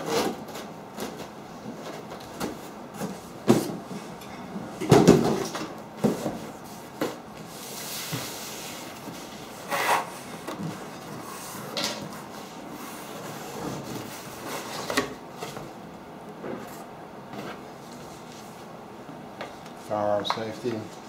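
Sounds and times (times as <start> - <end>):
knocks and rustles: 4.8 - 7.2
cardboard scraping on wood: 6.0 - 15.6.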